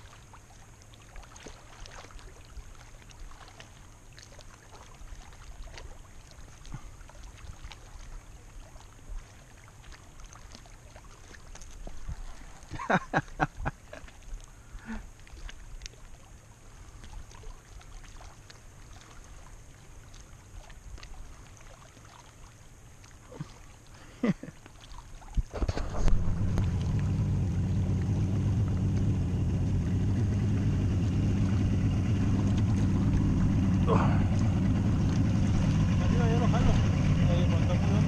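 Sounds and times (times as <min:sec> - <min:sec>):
shoreline ambience: 0:00.0 - 0:38.0
outboard motor idling: 0:25.5 - 0:38.0.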